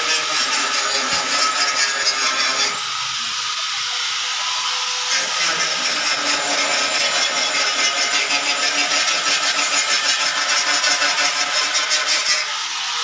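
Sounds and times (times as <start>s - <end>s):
angle grinder on metal: 0.0s - 13.0s.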